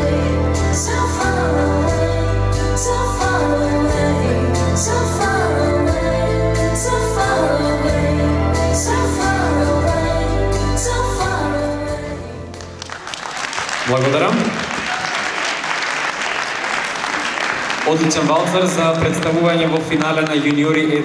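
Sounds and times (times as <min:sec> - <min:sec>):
slow waltz with singing: 0:00.0 - 0:12.9.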